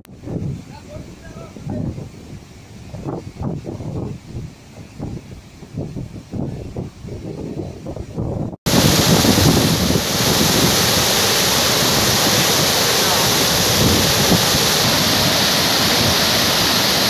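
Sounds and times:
water rushing over spillway: 8.7s - 17.0s.

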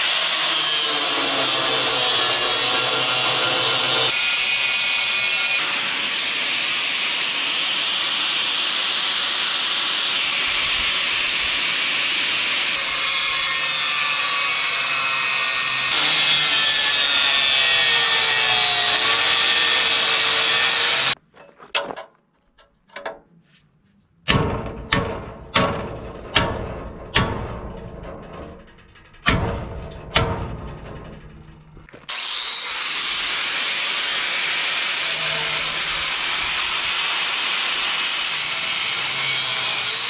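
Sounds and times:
angle grinder grinding steel: 0.0s - 21.2s, 31.9s - 40.0s.

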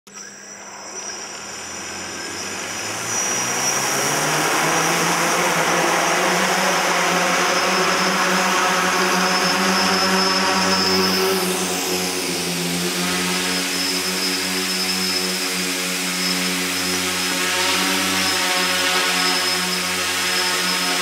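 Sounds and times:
drone motors whining: 0.1s - 21.0s.

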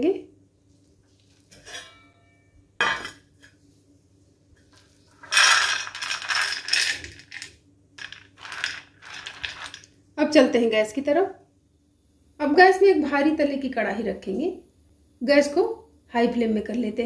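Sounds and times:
chickpeas rattling on metal plate: 5.2s - 9.9s.

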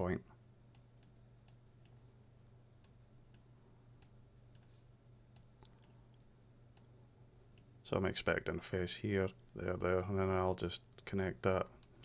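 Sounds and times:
faint low hum: 0.0s - 12.0s
computer mouse clicks: 2.8s - 6.9s.

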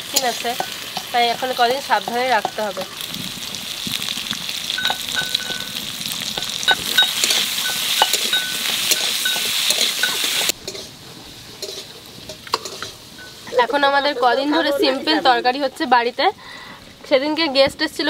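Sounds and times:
potatoes sizzling in oil: 0.0s - 16.4s
spatula scraping a pan: 6.4s - 11.0s, 11.6s - 13.9s.

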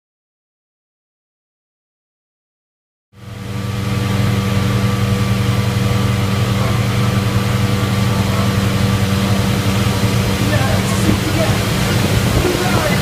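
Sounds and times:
blowers humming: 3.2s - 13.0s
rush of air: 3.3s - 13.0s.

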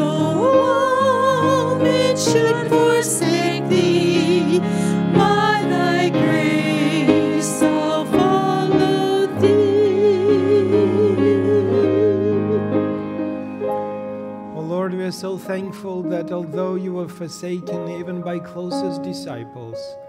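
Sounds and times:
woman singing a hymn: 0.0s - 13.1s
instrumental accompaniment: 0.0s - 20.0s.

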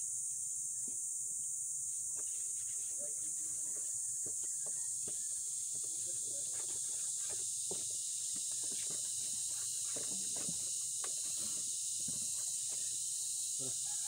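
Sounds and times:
insects buzzing: 0.0s - 14.0s.

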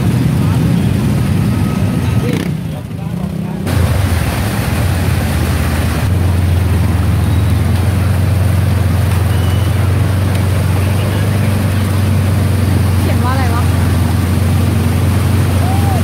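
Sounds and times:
scooter and car engines: 0.0s - 16.0s
water splashing: 3.6s - 16.0s.

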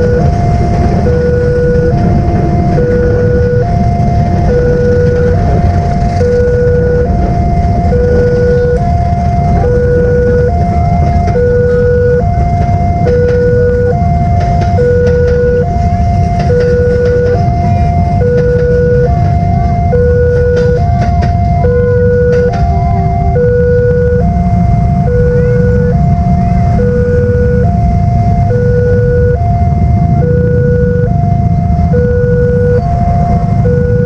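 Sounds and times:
train rumbling on rails: 0.0s - 34.0s
two-tone crossing alarm: 0.0s - 34.0s.

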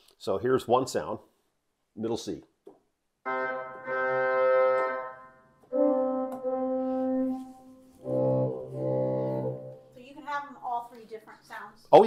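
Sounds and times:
pipe organ notes: 3.2s - 10.0s
low bass organ note: 3.3s - 9.9s.

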